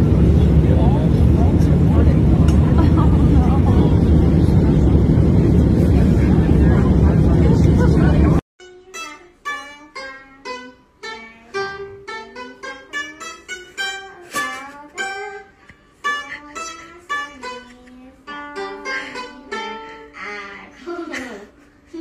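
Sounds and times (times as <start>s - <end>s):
pipa plucked melody: 8.6s - 20.7s.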